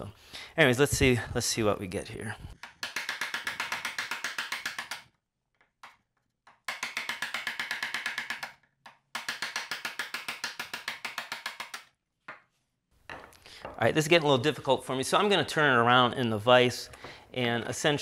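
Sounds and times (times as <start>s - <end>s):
wooden mallet tapping chisel: 2.6s - 12.5s, 13.1s - 13.8s.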